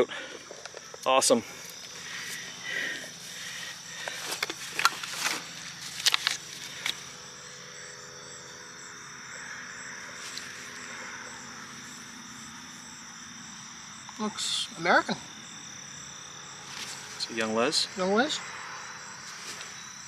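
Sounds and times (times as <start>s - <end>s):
insects chirring: 0.0s - 20.0s.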